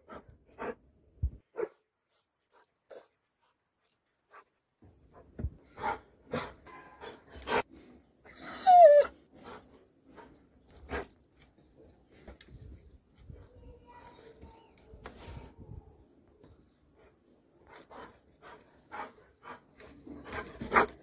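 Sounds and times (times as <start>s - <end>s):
dog whining: 8.2s - 9.2s.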